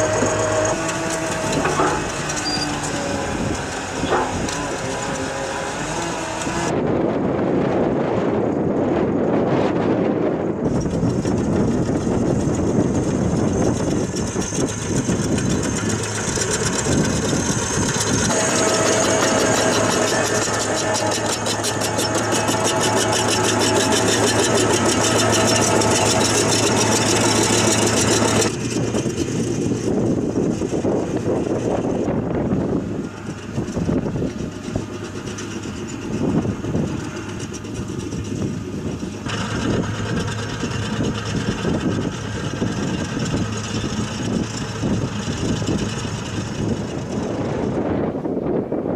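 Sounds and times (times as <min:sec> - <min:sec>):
heavy diesel engine running: 0:00.0 - 0:48.9.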